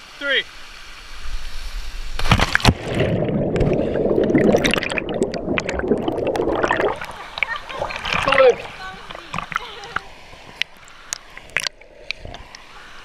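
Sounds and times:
muffled underwater rushing: 0:01.2 - 0:13.0
bubbles crackling and fizzing: 0:02.1 - 0:12.7
splash into water: 0:02.2 - 0:09.7.

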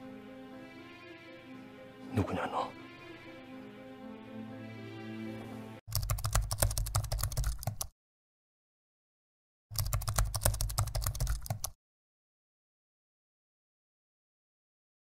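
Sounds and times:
music: 0:00.0 - 0:05.9
computer keyboard typing: 0:05.9 - 0:07.9, 0:09.8 - 0:11.8.

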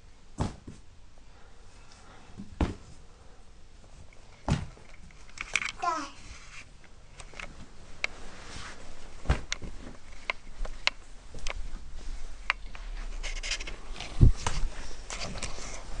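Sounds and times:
dull thump: 0:00.4 - 0:00.8, 0:02.4 - 0:02.9, 0:04.4 - 0:04.8, 0:09.2 - 0:09.9.

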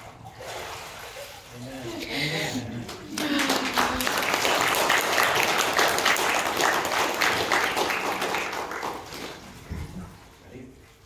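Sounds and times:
congregation applauding: 0:02.8 - 0:09.6.

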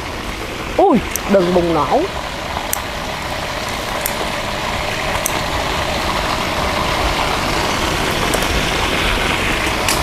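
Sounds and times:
oil sizzling loudly: 0:00.0 - 0:10.0
person talking: 0:00.8 - 0:02.1.

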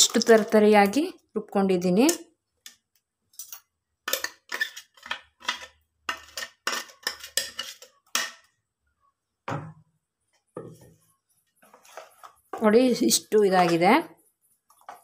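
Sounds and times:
spoon scraping metal jar: 0:03.4 - 0:08.4.

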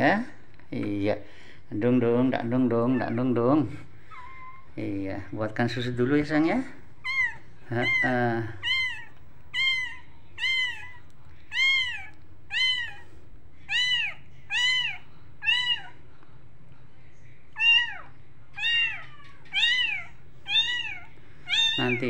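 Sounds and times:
kitten meowing: 0:07.0 - 0:13.1, 0:13.7 - 0:16.0, 0:17.6 - 0:22.0.

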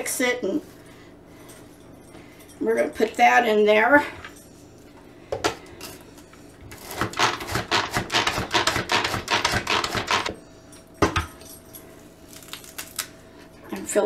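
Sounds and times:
pull-cord food chopper rattling: 0:06.8 - 0:10.3.

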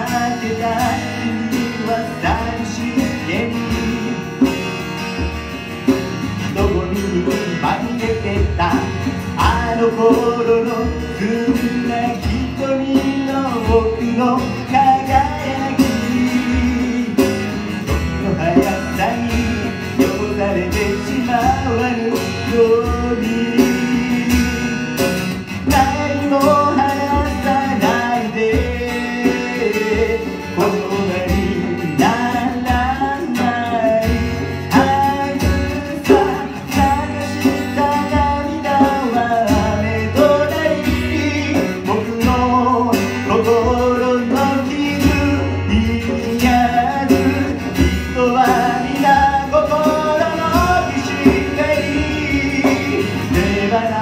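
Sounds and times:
man singing: 0:00.0 - 0:05.0, 0:05.8 - 0:54.0
acoustic guitar strumming: 0:00.0 - 0:54.0.

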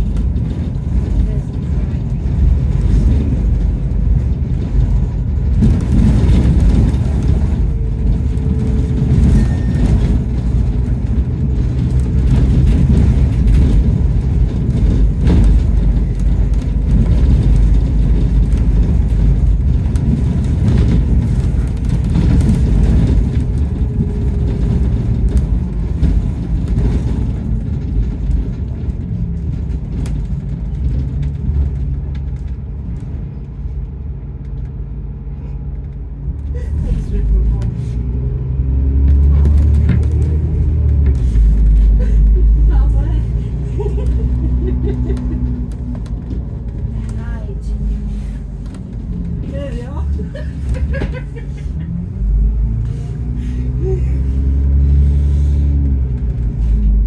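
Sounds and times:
bus engine whine: 0:00.0 - 0:57.0
road rumble: 0:00.0 - 0:57.0.

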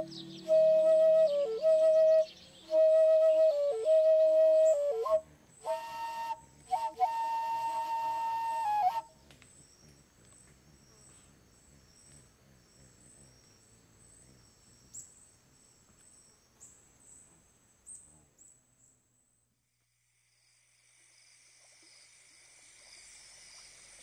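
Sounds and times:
wooden flute note: 0:00.0 - 0:09.1
insects chirping: 0:00.0 - 0:24.0.

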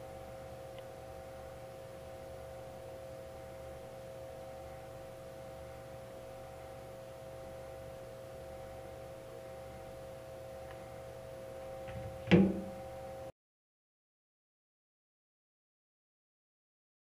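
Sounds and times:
equipment humming: 0:00.0 - 0:13.3.

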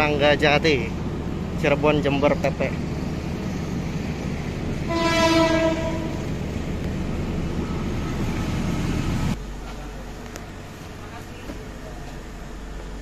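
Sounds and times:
low railway rumble: 0:00.0 - 0:13.0
train horn: 0:04.9 - 0:06.3.

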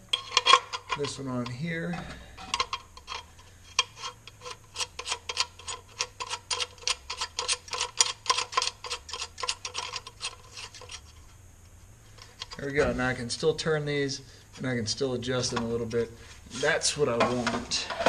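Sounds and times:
ratcheting hand driver clicking: 0:02.5 - 0:11.0.

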